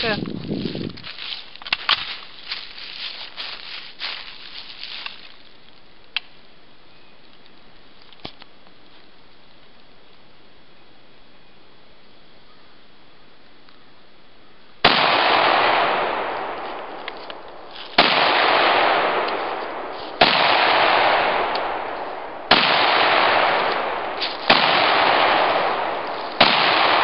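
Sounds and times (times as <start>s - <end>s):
rifle shots echoing: 14.8s - 27.0s.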